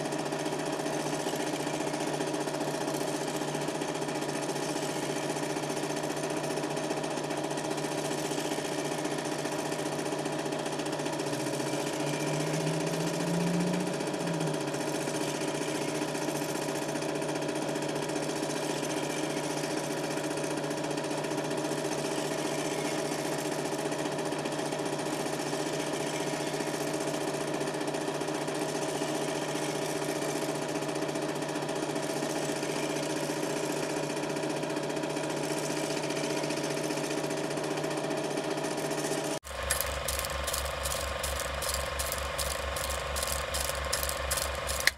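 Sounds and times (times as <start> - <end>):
film projector whir and rattle: 0.0 - 44.9.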